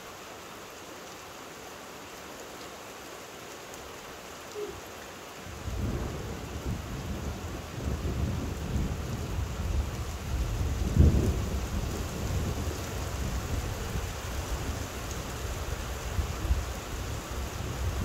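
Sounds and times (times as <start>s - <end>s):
steady rain: 0.0s - 18.0s
thunder rumbling: 5.6s - 13.9s.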